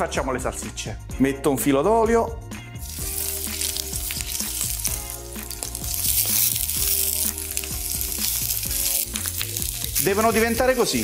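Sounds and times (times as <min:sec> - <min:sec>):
background music: 0:00.0 - 0:11.0
sausages sizzling in a frying pan: 0:02.8 - 0:11.0.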